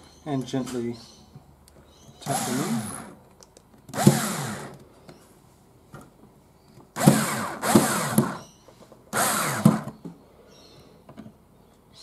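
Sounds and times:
cordless drill driving screws: 2.2s - 3.2s, 3.9s - 4.8s, 7.0s - 8.5s, 9.1s - 10.0s.

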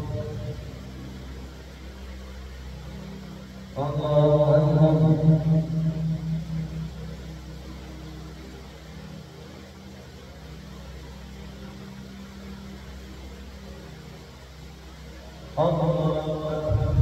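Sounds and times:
man's voice reverberating: 0.0s - 0.9s, 3.8s - 7.1s, 15.6s - 17.0s
low room hum with hiss: 0.0s - 17.0s.

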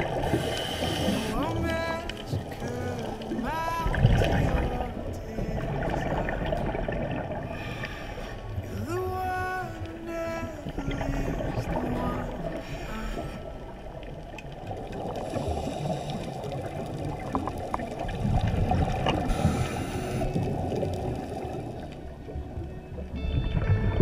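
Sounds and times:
underwater gurgling rumble: 0.0s - 24.0s
faint clicks: 13.7s - 18.1s.

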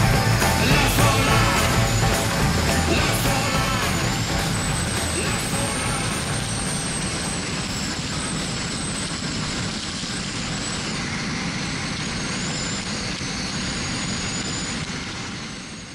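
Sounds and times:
motorcycle engine running: 0.0s - 9.8s.

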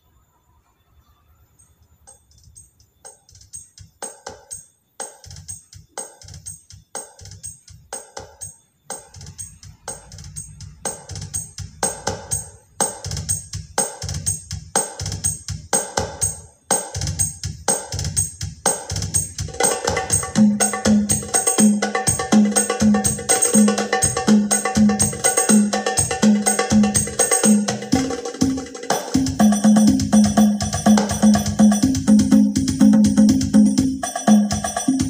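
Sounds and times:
percussion music over loudspeaker: 2.1s - 35.0s.

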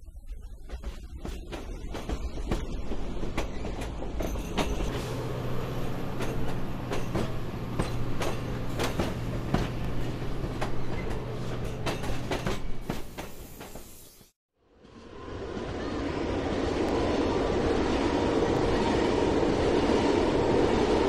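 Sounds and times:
model train humming: 5.0s - 10.5s.

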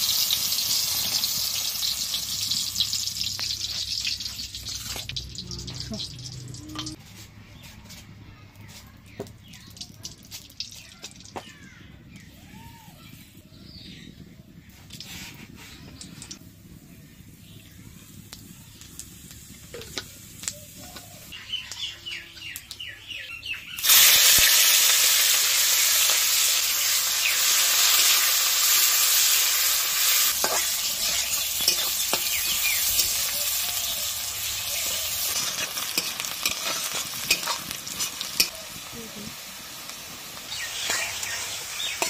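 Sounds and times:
onion sizzling in hot oil: 0.0s - 7.0s, 14.5s - 22.8s, 23.7s - 42.0s
spices frying faintly: 0.0s - 42.0s.

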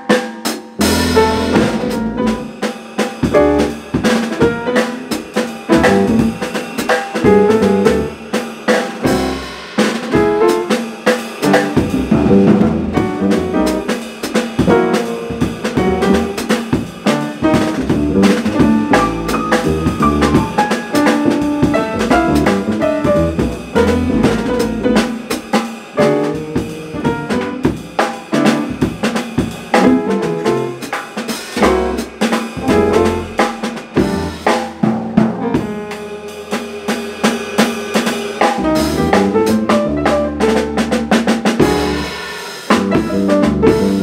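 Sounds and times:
drum kit: 0.0s - 44.0s
piano: 0.0s - 44.0s
double bass: 0.8s - 2.5s, 3.4s - 3.9s, 5.7s - 6.4s, 7.3s - 8.2s, 9.1s - 9.6s, 11.4s - 13.9s, 15.7s - 16.4s, 17.2s - 25.2s, 26.0s - 27.6s, 29.8s - 30.8s, 31.6s - 35.8s, 38.6s - 44.0s.

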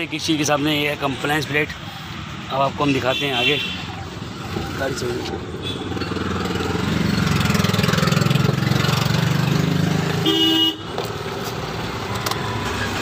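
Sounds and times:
horn toot: 10.2s - 10.9s.

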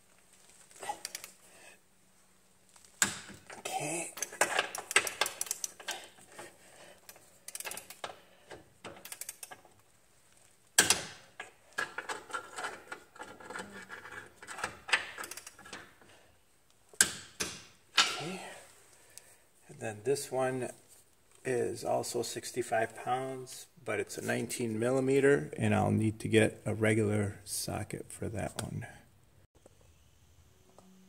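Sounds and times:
torque wrench ratcheting clicks: 9.0s - 9.6s.

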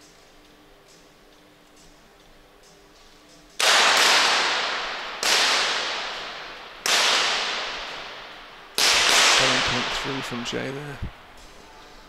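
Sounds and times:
pistol shots with echo: 3.6s - 11.0s.

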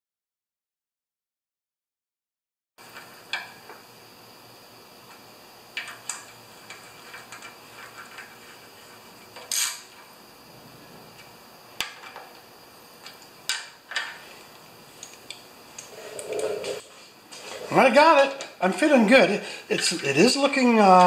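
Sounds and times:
metal scrape: 15.9s - 17.9s.

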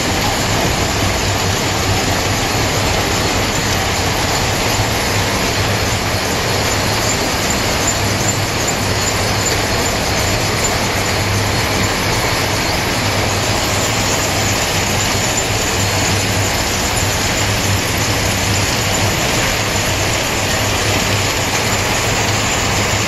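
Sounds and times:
winding machine whirr and clatter: 0.0s - 23.0s.

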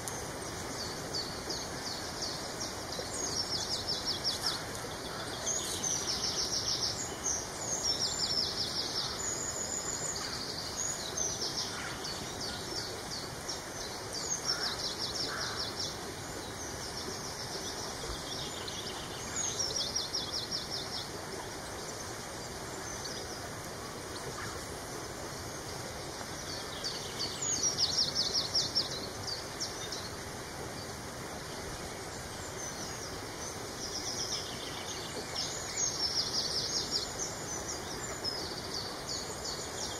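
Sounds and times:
songbirds trilling: 0.0s - 22.1s.

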